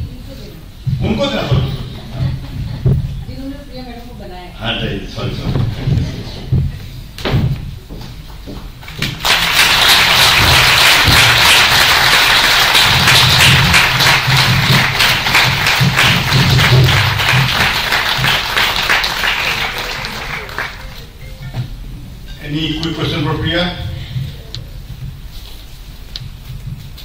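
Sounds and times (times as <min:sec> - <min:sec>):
audience applauding: 0:08.8 - 0:21.3.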